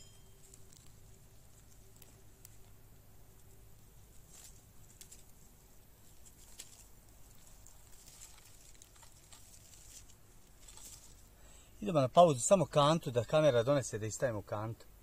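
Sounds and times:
faint light ticks and crackles: 0.0s - 11.5s.

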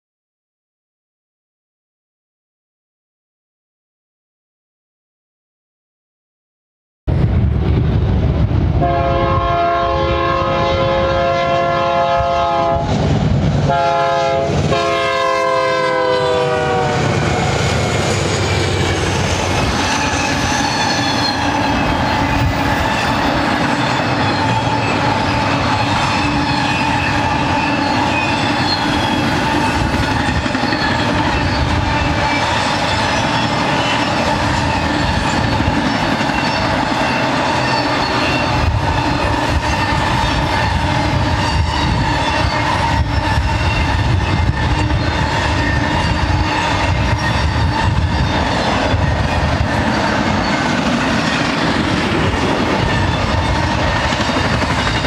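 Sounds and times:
locomotive horn blasts: 8.8s - 12.9s, 13.7s - 17.1s
train wheels clattering on rails: 17.0s - 55.0s
thin wheel squeals: 18.7s - 51.6s, 52.7s - 55.0s.

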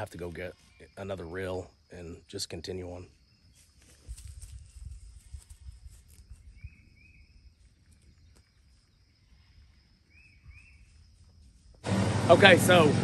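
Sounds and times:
faint insect drone: 0.0s - 11.8s
bird chirps: 6.3s - 11.2s.

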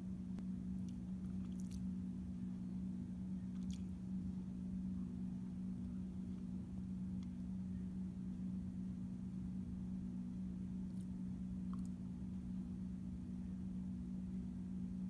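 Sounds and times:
ceiling fan humming: 0.0s - 15.0s.

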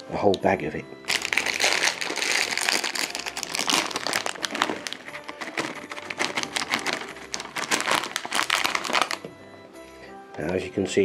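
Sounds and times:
plastic bag crinkling: 1.1s - 9.3s.

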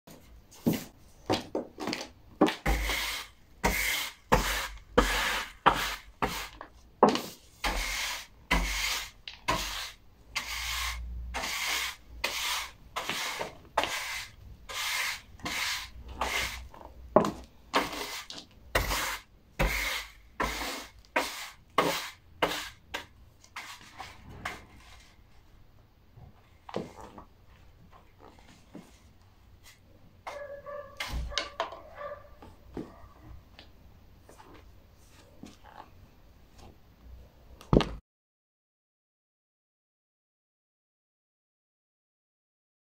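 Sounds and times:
broom sweeping: 2.6s - 16.8s, 17.8s - 25.4s
shoes scraping sawdust on floor: 2.6s - 22.8s.

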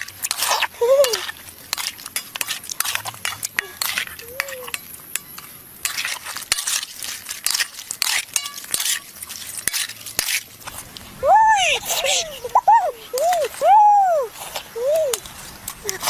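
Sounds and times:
utensil scraping and clinking pan: 0.0s - 10.6s.

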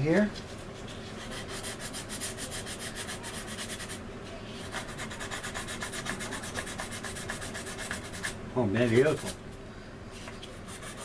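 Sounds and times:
sanding strokes on resin: 0.8s - 4.0s, 4.6s - 9.4s, 10.6s - 11.0s.

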